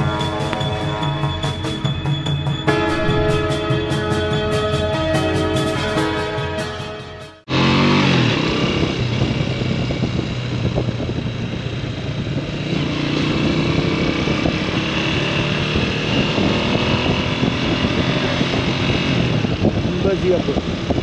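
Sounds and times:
motorcycle engine running: 0:00.0 - 0:21.0
steady rushing noise: 0:02.7 - 0:04.8.

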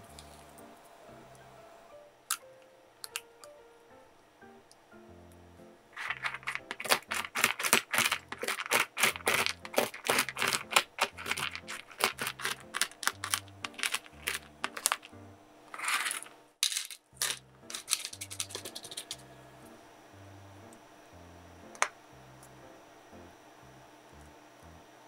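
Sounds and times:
soft background music: 0:00.0 - 0:15.7, 0:17.1 - 0:25.0
knife chopping nuts on cutting board: 0:06.0 - 0:15.1.

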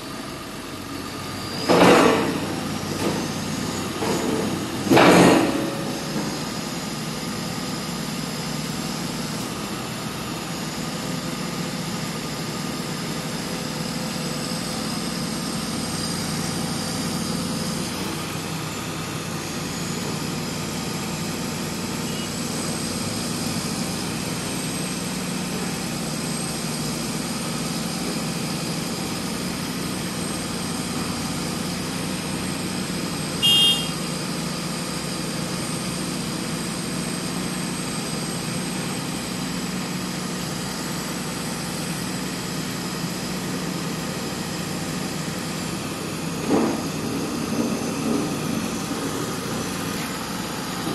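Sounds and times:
diesel engine running: 0:00.0 - 0:50.9
sharp high-pitched sound: 0:33.4 - 0:34.0.

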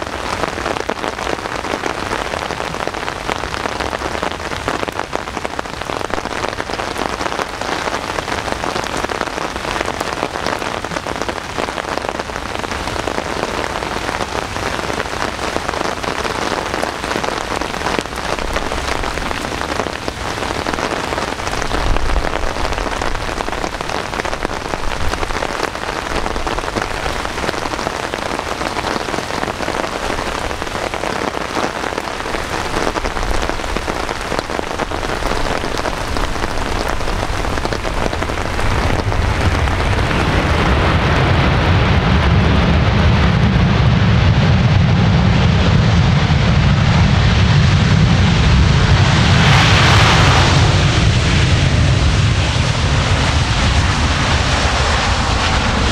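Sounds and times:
heavy rain pattering: 0:00.0 - 0:55.9
low rumbling: 0:32.2 - 0:55.9.

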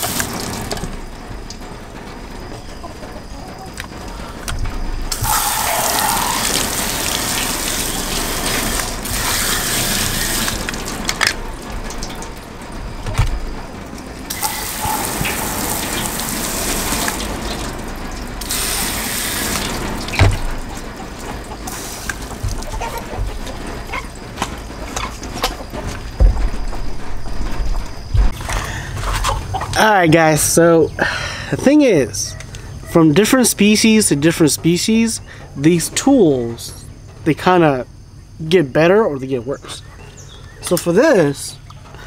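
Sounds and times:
hose nozzle spraying water: 0:00.0 - 0:00.8, 0:05.1 - 0:11.2, 0:14.3 - 0:17.8, 0:18.4 - 0:20.5, 0:21.7 - 0:23.3.

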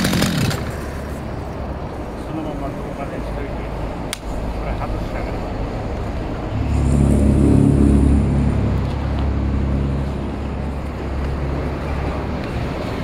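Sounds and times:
chainsaw engine idling: 0:00.0 - 0:00.9.

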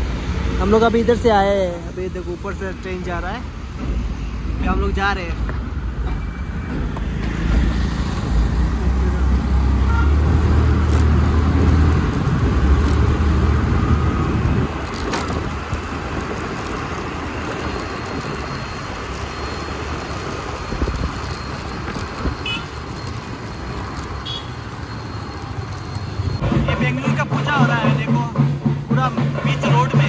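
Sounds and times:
low wind buffeting: 0:05.4 - 0:24.2
motorbike engine and road noise: 0:05.4 - 0:28.2
wind rush: 0:11.2 - 0:18.5.

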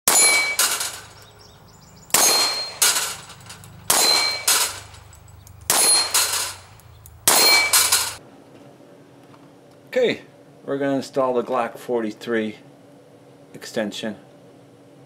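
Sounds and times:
steel plate ringing ding: 0:00.1 - 0:01.2, 0:02.1 - 0:06.6, 0:07.3 - 0:08.2
handgun shots: 0:02.1 - 0:03.3, 0:03.9 - 0:05.0, 0:05.7 - 0:06.6, 0:07.3 - 0:08.2.

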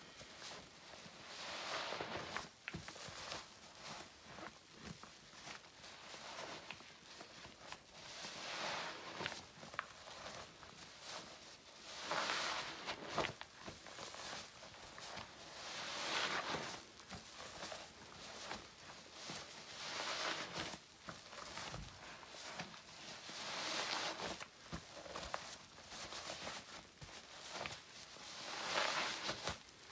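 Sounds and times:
soapy sponge squelching: 0:01.2 - 0:02.4, 0:08.0 - 0:09.4, 0:11.8 - 0:16.9, 0:17.6 - 0:24.4, 0:28.2 - 0:29.5.

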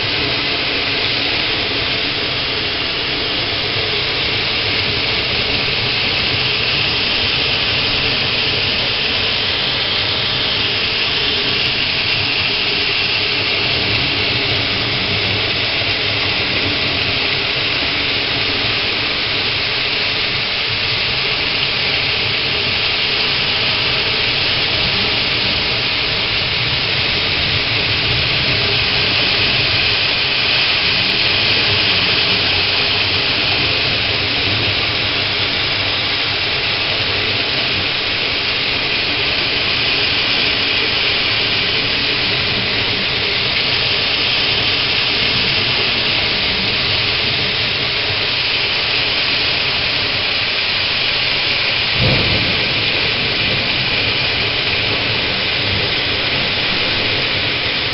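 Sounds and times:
heavy rain pouring: 0:00.0 - 0:57.9.

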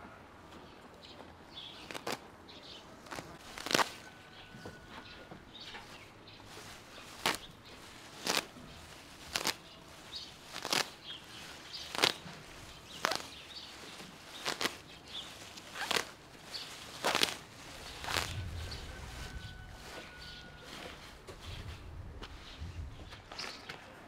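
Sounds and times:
herb stems snapping: 0:01.8 - 0:02.2, 0:03.0 - 0:04.0, 0:07.1 - 0:07.5, 0:08.2 - 0:08.5, 0:09.3 - 0:09.6, 0:10.5 - 0:11.0, 0:11.9 - 0:13.4, 0:14.3 - 0:14.9, 0:15.6 - 0:16.2, 0:16.9 - 0:18.4.

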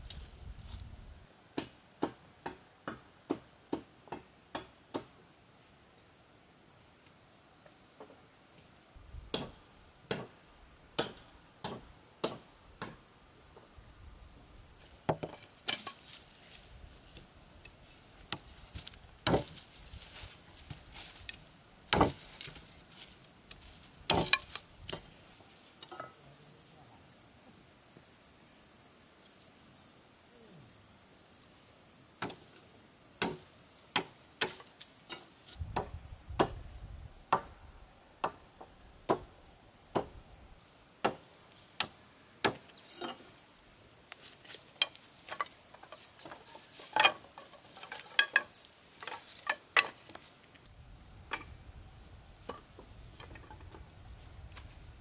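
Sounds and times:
high insect trill: 0:14.8 - 0:55.0
blade chopping wood: 0:19.2 - 0:19.6, 0:21.9 - 0:22.6, 0:24.1 - 0:25.0, 0:33.2 - 0:33.4.

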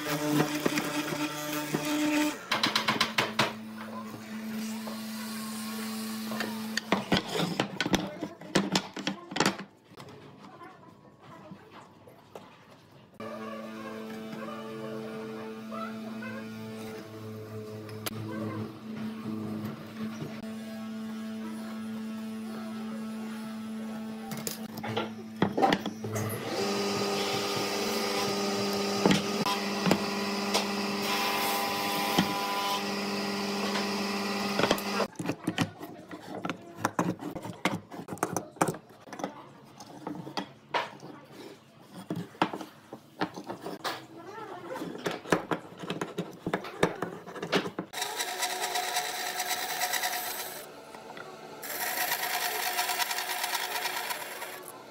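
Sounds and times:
band saw cutting wood: 0:00.0 - 0:02.5, 0:26.0 - 0:35.1, 0:47.9 - 0:54.9
clicks and knocks from hand work: 0:02.5 - 0:03.6
small power tool running: 0:26.0 - 0:35.1, 0:47.9 - 0:54.9.

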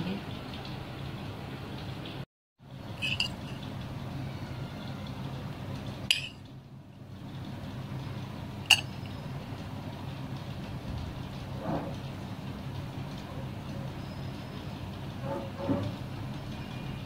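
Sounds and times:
utensil clinking on a dish: 0:03.0 - 0:03.7, 0:06.1 - 0:06.4, 0:08.7 - 0:09.2.

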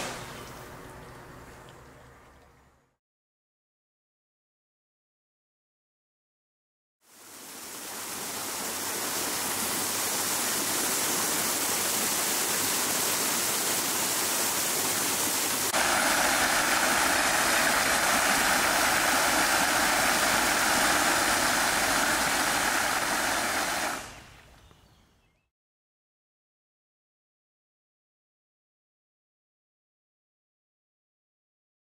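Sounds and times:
fountain water splashing: 0:07.1 - 0:24.5.

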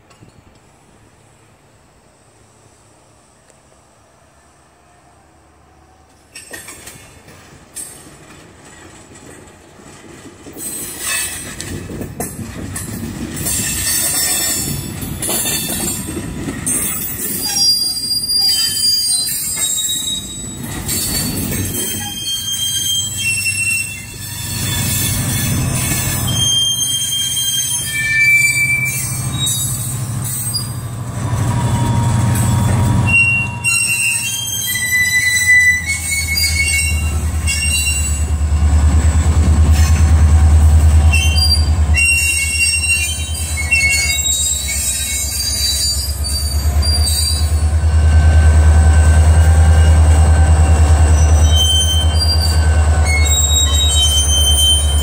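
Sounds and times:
diesel locomotive engine drone: 0:00.0 - 0:55.0
freight train rumbling past: 0:00.0 - 0:55.0
train wheels squealing: 0:10.5 - 0:38.6, 0:39.2 - 0:55.0.

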